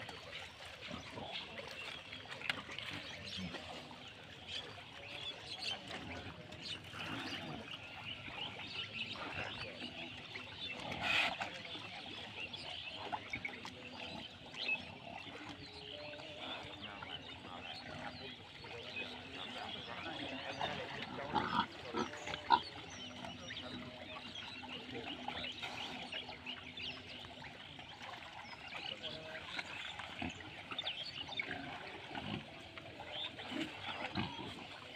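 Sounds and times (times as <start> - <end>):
pigs calling: 16.2 - 26.7, 29.1 - 34.9.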